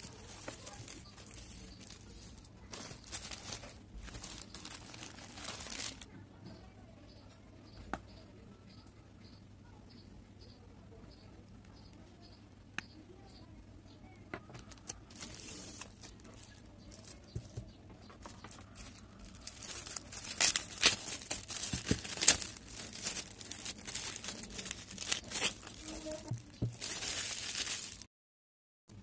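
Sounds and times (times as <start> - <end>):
plastic wrapping crinkling and tearing: 0.0 - 6.1, 14.6 - 17.6, 18.2 - 28.1.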